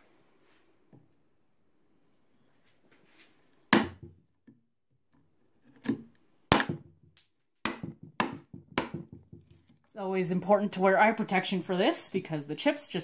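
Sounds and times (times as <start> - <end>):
mallet striking a chisel: 7.6 - 9.5.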